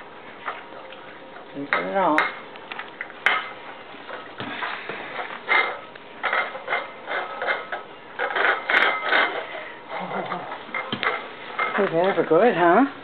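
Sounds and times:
plate scraping on tiles: 5.1 - 11.8.

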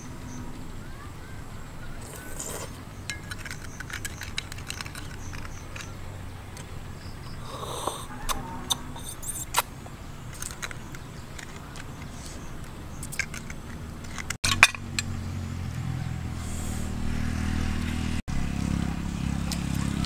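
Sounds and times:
faint chewing: 2.0 - 2.8
metal spoon clicking and scraping: 2.3 - 6.0.

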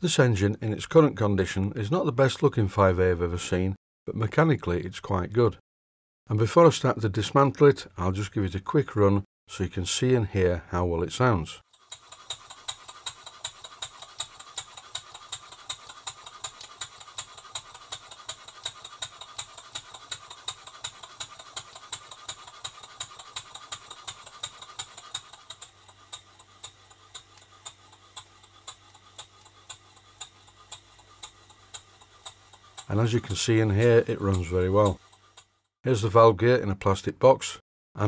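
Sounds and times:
model steam engine exhaust puffs: 11.6 - 35.7.

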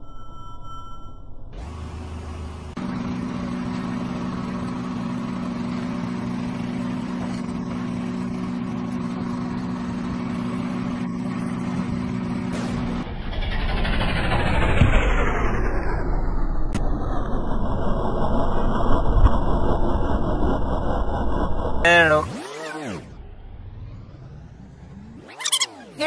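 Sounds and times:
car engine humming: 1.4 - 26.0.

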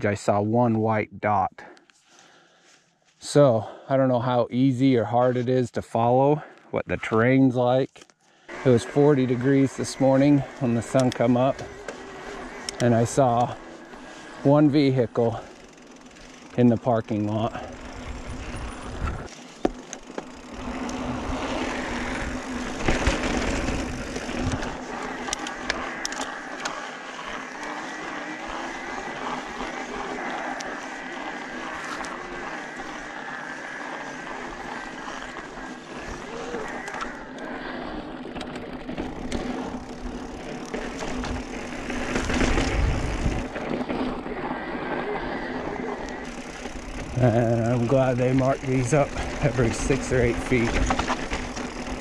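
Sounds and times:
bike tyres rolling on rock: 8.5 - 52.0
steady whine: 8.5 - 52.0
bike clicks and knocks: 9.4 - 14.4, 17.7 - 44.7, 46.1 - 52.0
wind noise: 18.0 - 19.3, 42.3 - 43.8.

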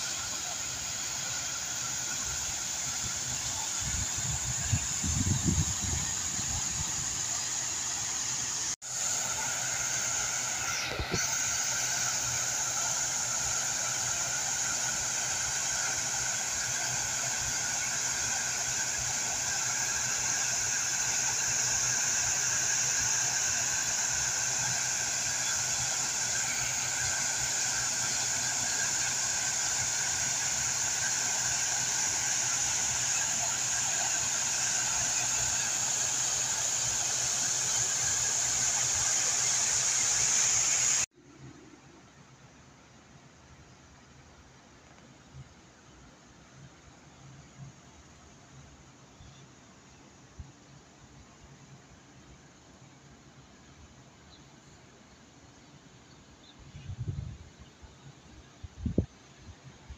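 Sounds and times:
fountain water splashing: 0.0 - 41.1.

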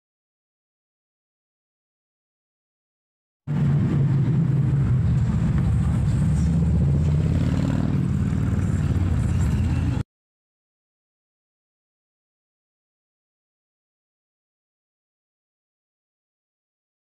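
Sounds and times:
traffic engine rumble: 3.5 - 10.0.

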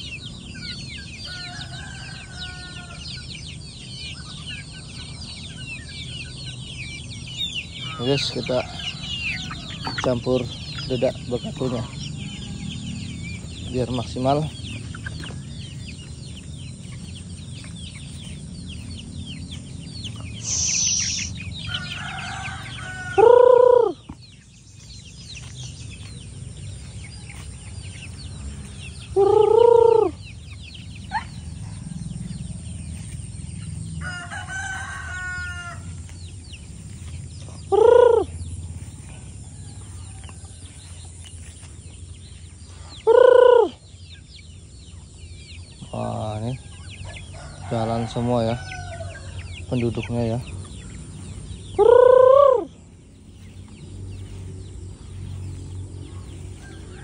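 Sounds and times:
chickens clucking: 0.0 - 57.0
rooster crowing: 1.2 - 3.5, 7.8 - 10.4, 11.7 - 13.6, 19.9 - 24.1, 34.0 - 36.3, 37.7 - 41.1, 46.6 - 49.6, 55.2 - 57.0.

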